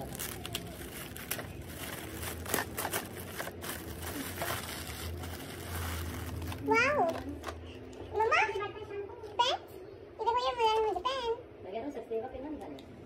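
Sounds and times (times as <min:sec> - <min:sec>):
metallic gift wrap crinkling: 0:00.0 - 0:07.5.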